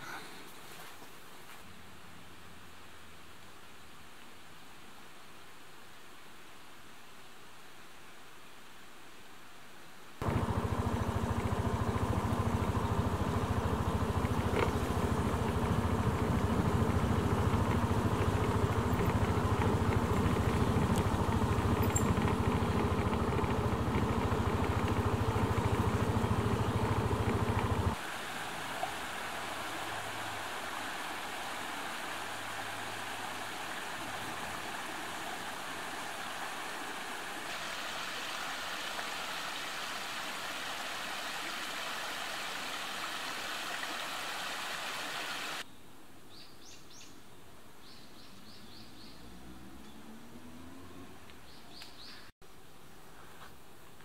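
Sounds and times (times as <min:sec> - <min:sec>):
quiet steady hiss: 0:00.0 - 0:49.0
vehicle engine running: 0:10.2 - 0:28.2.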